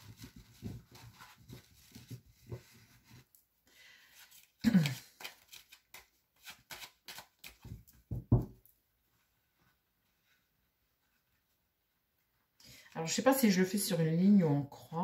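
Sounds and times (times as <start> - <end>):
cards being shuffled: 4.2 - 7.9.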